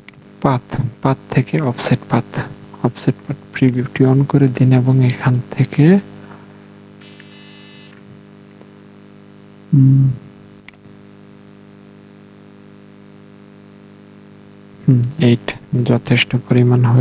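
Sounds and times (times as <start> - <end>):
electrical mains hum: 0.0 - 17.0
brief low voiced sound: 9.7 - 10.3, 14.8 - 15.6
sharp click: 10.6 - 10.8
recording hiss: 14.8 - 17.0.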